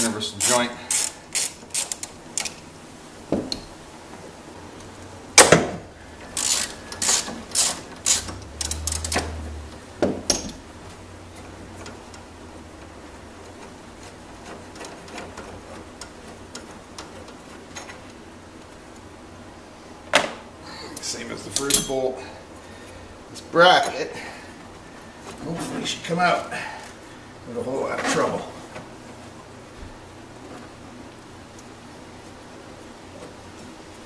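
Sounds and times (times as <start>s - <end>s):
hand ratchet clicking: 0.3s - 2.6s, 6.3s - 9.4s.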